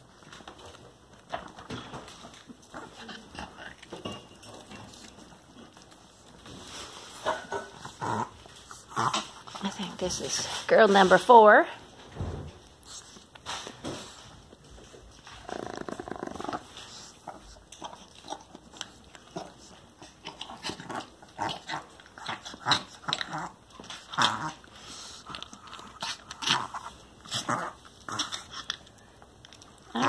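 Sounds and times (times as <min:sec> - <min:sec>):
dogs crunching kibble: 0:00.0 - 0:11.3, 0:12.6 - 0:30.0
dog growl: 0:07.3 - 0:09.8, 0:15.3 - 0:18.5, 0:19.3 - 0:28.8.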